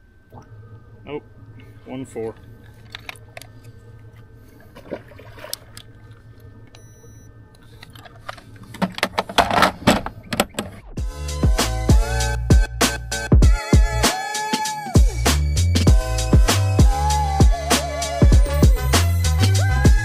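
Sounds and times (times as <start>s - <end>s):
steady low hum: 0.0s - 13.3s
music with heavy beat: 11.0s - 20.0s.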